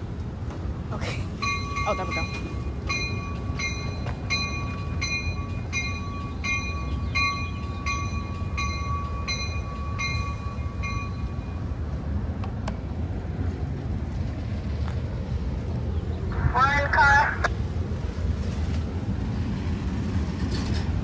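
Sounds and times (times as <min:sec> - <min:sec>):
train cars rumbling: 0:00.0 - 0:21.0
warning bell ringing: 0:01.4 - 0:11.6.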